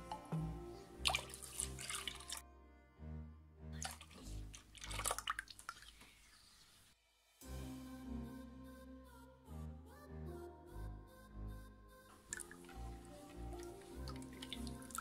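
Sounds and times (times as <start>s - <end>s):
background music: 0.0s - 5.6s, 7.2s - 15.0s
liquid sloshing in a bowl: 1.0s - 2.4s, 3.8s - 6.3s.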